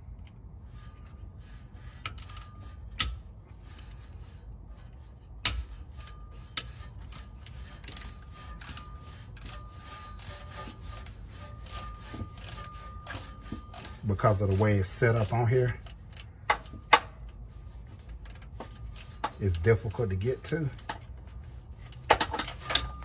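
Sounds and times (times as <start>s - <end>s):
screwdriver clicking and scraping: 0.8s - 23.0s
sharp metal knocks: 16.4s - 17.2s.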